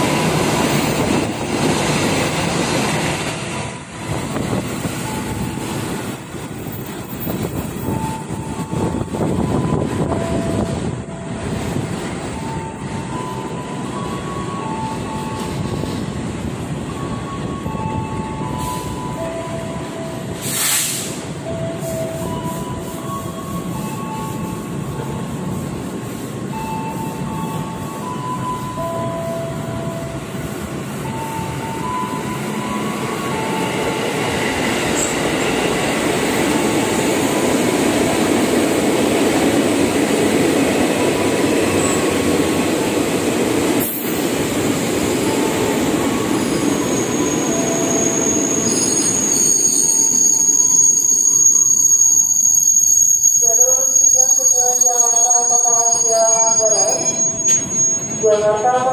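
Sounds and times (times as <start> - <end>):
electric train rumbling: 0.0 - 58.9
wheels squealing: 45.2 - 58.7.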